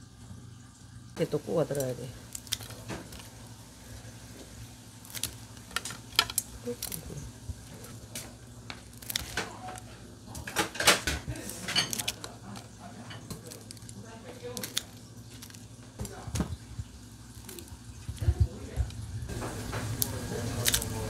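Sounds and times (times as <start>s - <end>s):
steady low hum: 0.0s - 21.0s
tongs and scissors clicking: 5.1s - 7.1s, 14.6s - 15.6s.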